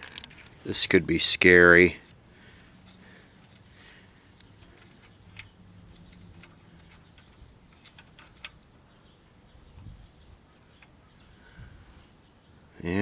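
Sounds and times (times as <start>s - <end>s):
faint metallic clicks: 4.3s - 8.7s.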